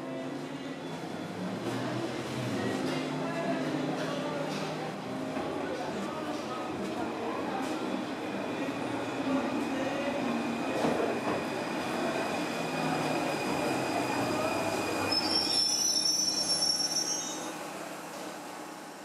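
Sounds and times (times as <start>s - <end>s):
train rolling on rails: 0.1s - 19.0s
train wheels squealing: 13.0s - 17.7s.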